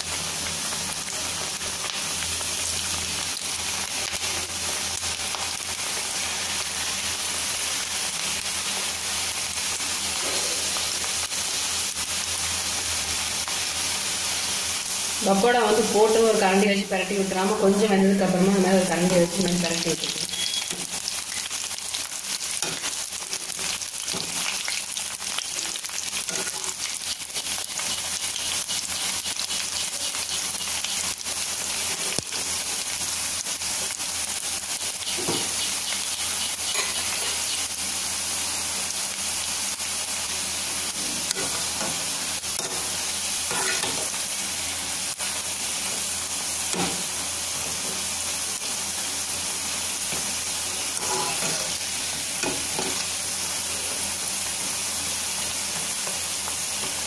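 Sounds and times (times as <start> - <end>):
food deep-frying in hot oil: 0.0 - 57.0.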